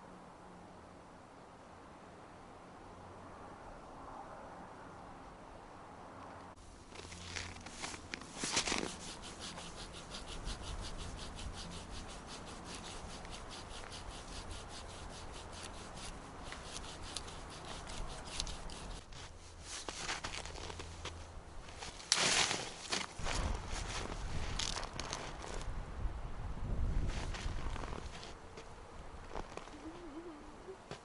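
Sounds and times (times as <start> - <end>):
saw rasping through branch: 6.9 - 20.8
scrapes and cracks: 6.9 - 25.7.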